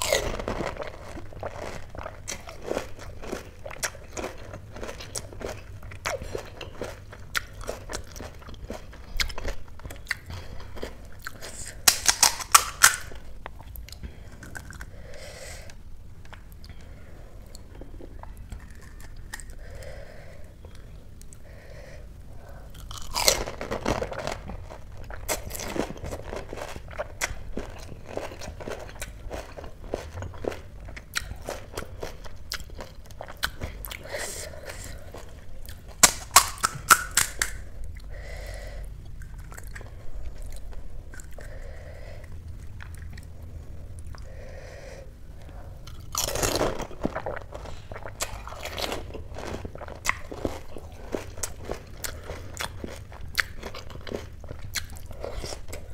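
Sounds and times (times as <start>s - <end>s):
chewing: 0.0s - 14.9s, 45.4s - 55.9s
crisp shells cracking when bitten: 11.5s - 13.2s, 35.8s - 37.7s.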